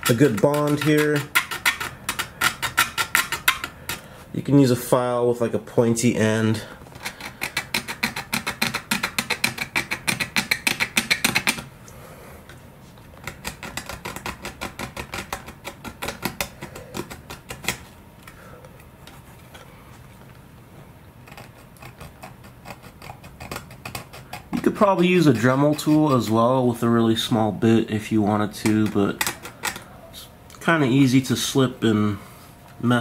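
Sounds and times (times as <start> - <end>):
file scraping paint: 0.0 - 4.1, 6.9 - 11.7, 13.2 - 17.9, 21.2 - 26.6, 28.4 - 29.9.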